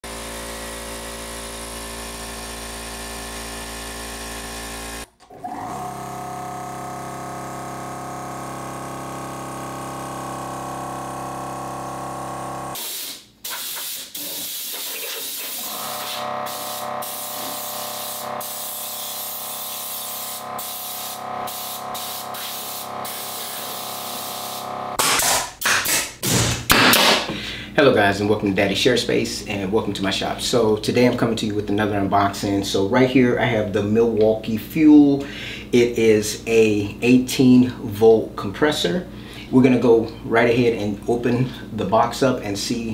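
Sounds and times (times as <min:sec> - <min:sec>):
air compressor motor humming: 0:00.0 - 0:25.0.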